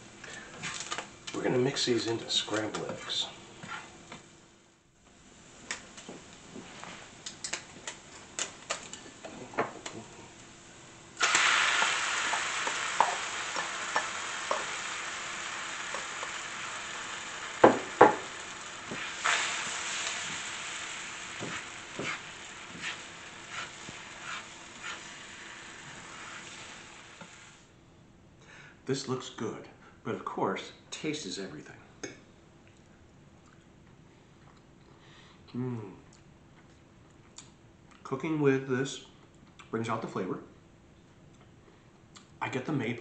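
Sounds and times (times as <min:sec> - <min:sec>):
eggs sizzling in hot pan: 0:05.2 - 0:27.7
spatula clicking in frying pan: 0:11.8 - 0:14.7
spatula scraping and knocking pan: 0:11.8 - 0:14.8, 0:18.9 - 0:19.4, 0:21.4 - 0:25.1.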